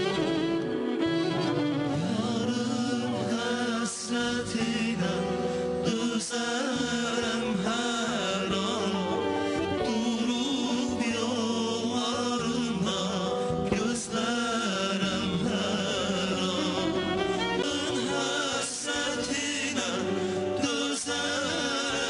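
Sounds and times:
band accompaniment: 0.0 - 6.2
male vocal group singing: 0.0 - 22.0.

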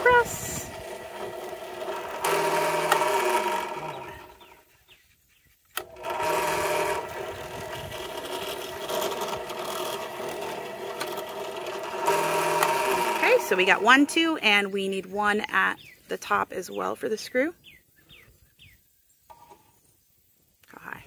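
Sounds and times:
drill bit drilling plastic pipe: 0.0 - 4.4, 5.8 - 14.4
drill press motor whine: 0.0 - 4.5, 5.8 - 14.2.

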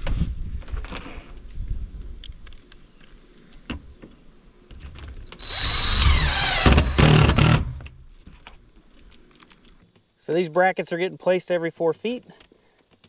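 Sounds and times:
power drill whine: 5.4 - 7.9.

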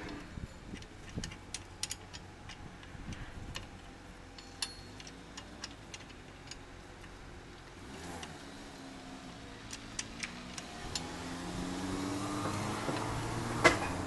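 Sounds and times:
metallic clicks of socket wrench: 0.7 - 7.2.

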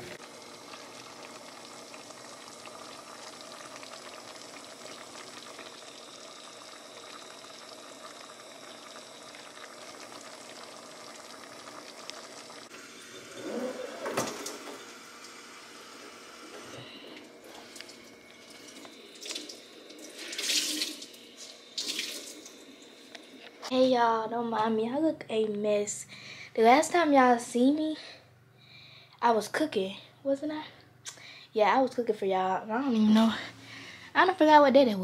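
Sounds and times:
food sizzling in frying pan: 0.0 - 16.7, 17.5 - 23.7.

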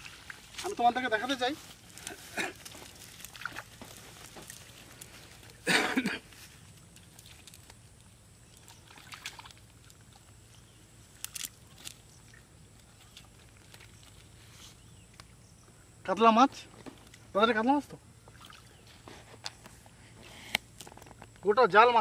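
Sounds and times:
net rustling on grass: 0.0 - 7.9.

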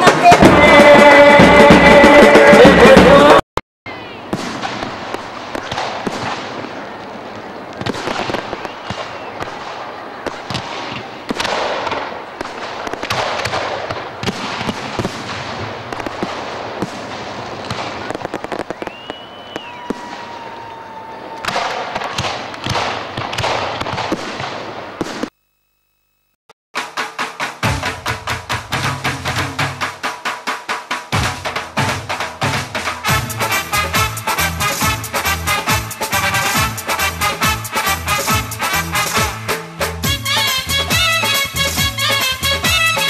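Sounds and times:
fireworks bangs and crackling: 0.0 - 3.4, 4.2 - 25.3
firework whistles: 17.8 - 21.8.

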